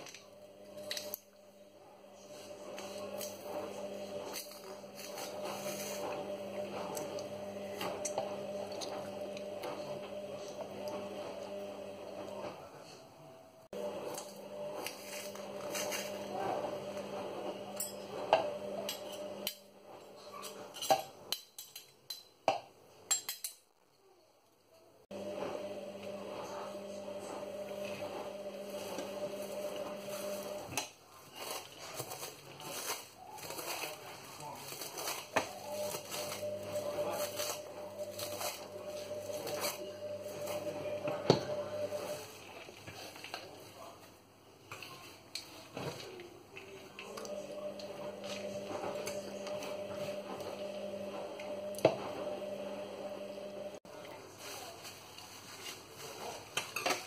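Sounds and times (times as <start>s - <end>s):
rustling and scraping leaves: 2.5s - 7.0s, 13.9s - 17.3s, 28.2s - 40.8s, 53.9s - 57.0s.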